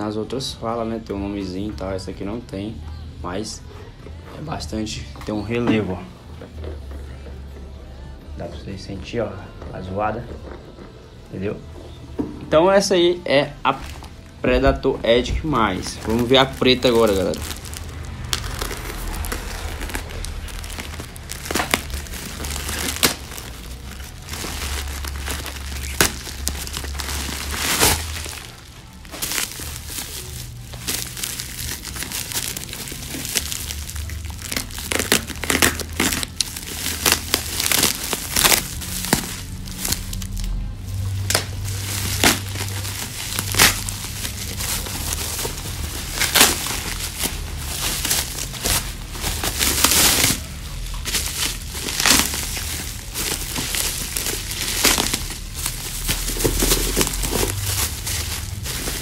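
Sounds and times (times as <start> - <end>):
plastic bag crinkling: 13.7 - 59.0.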